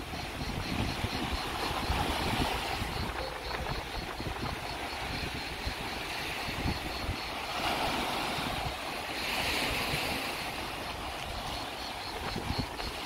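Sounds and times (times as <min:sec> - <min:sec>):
surf breaking on beach: 0:00.0 - 0:13.0
wind buffeting microphone: 0:00.0 - 0:13.0.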